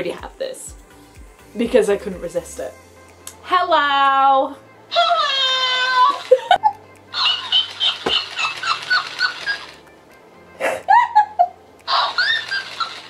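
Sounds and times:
squeaky high-pitched toy laughter: 0:04.9 - 0:09.8, 0:10.9 - 0:13.0.

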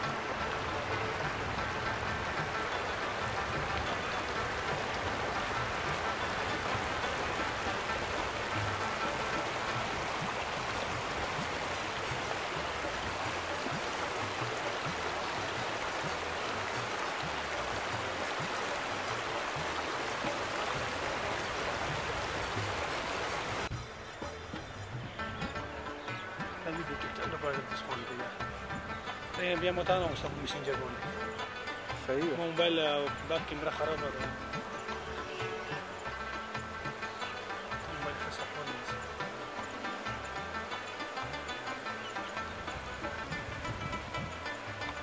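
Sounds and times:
water hissing: 0:00.0 - 0:24.5.

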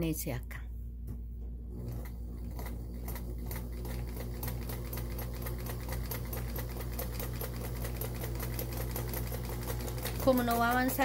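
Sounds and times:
sewing machine motor running: 0:01.7 - 0:11.0
needle clicking rhythmically: 0:02.5 - 0:11.0.

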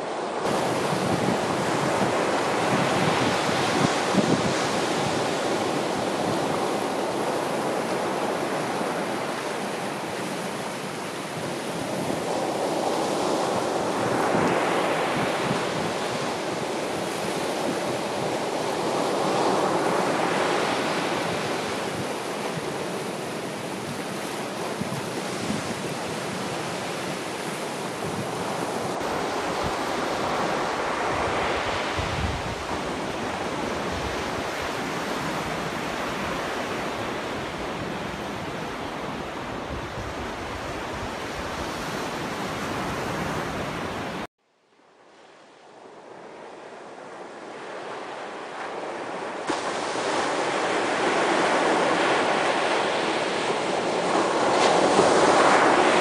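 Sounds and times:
wind rumble on microphone: 0:00.0 - 0:44.3
surf breaking on rocks: 0:49.4 - 0:56.0.

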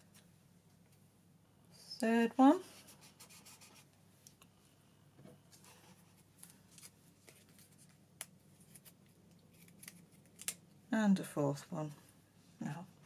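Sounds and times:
paper rustling: 0:05.5 - 0:10.6.

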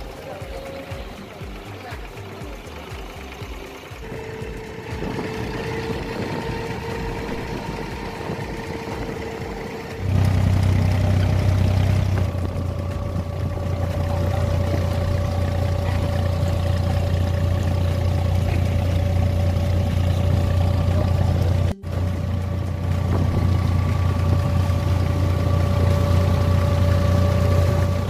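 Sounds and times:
boat engines running: 0:00.0 - 0:28.0
deep diesel engine hum: 0:00.0 - 0:28.0.

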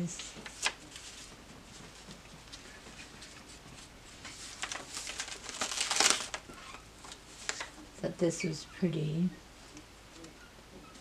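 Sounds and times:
paper page rustling: 0:00.1 - 0:07.8.

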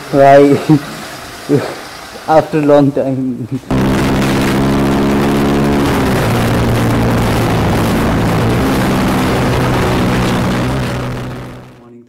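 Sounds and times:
wind and road noise: 0:03.7 - 0:11.7
motorcycle engine running: 0:03.7 - 0:11.8.

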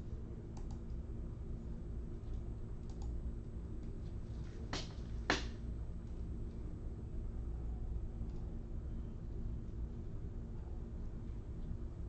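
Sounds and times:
low electrical hum: 0:00.0 - 0:12.0
computer keyboard keystrokes: 0:02.8 - 0:03.2.

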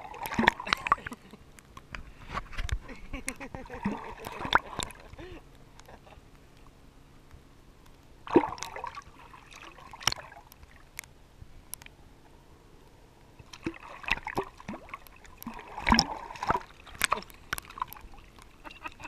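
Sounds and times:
pool water splashing: 0:00.0 - 0:01.5, 0:02.5 - 0:06.3, 0:08.2 - 0:11.0, 0:13.4 - 0:19.0.

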